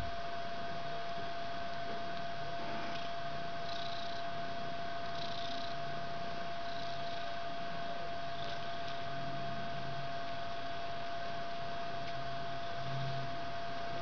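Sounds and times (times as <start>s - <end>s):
electrical hum: 0.0s - 14.0s
cat purring: 2.5s - 9.2s.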